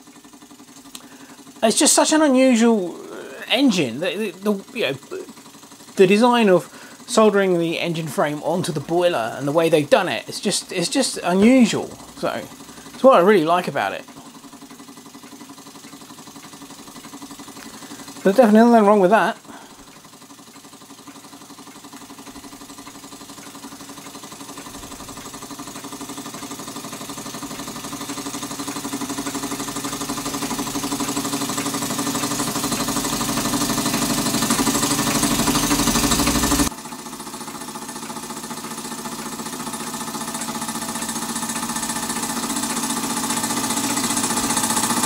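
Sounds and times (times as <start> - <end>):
model steam engine running: 0.0 - 45.0.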